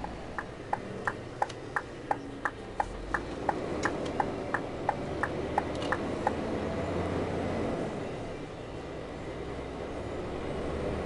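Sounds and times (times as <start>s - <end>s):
turn signal ticking: 0.0s - 6.4s
diesel engine running: 0.0s - 11.0s.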